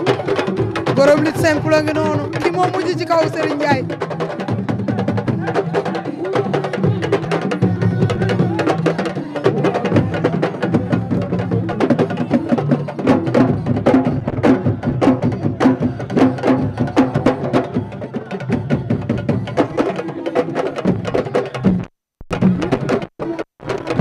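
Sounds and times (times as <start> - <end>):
fast drumming: 0.0 - 24.0.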